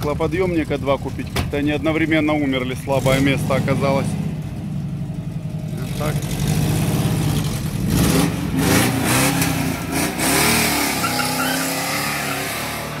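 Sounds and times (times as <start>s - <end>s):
car engine revving: 2.7s - 13.0s.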